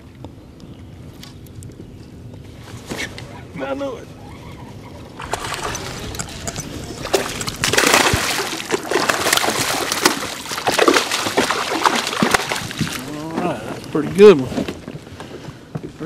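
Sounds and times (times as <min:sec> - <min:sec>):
fish thrashing and splashing: 0:05.2 - 0:13.3.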